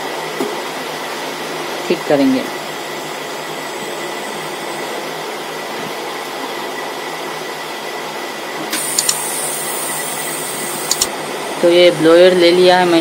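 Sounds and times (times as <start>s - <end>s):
click: 8.8s - 9.2s, 10.9s - 11.1s.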